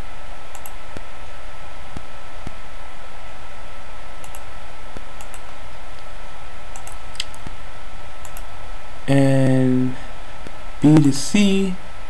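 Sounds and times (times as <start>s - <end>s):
steady background hiss: 0.0s - 12.0s
computer mouse clicks: 0.5s - 1.1s, 4.2s - 6.1s, 6.7s - 7.6s, 8.2s - 8.5s.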